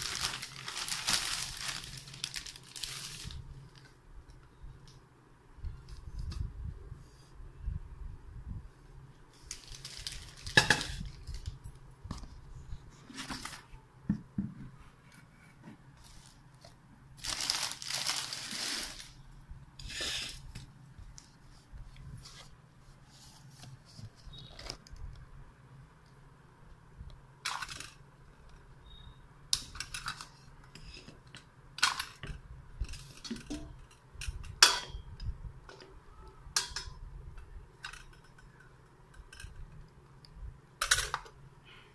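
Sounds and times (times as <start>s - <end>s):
plastic wrapping crinkling: 0.0s - 3.9s, 9.4s - 11.6s, 17.2s - 19.2s.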